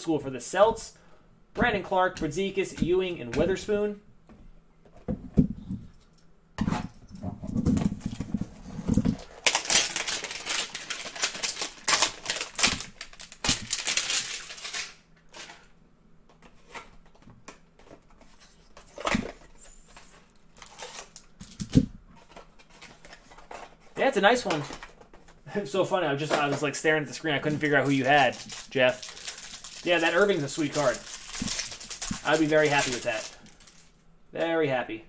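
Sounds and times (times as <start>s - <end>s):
cardboard and wrapper ripping: 7.6s - 15.0s, 27.4s - 33.9s.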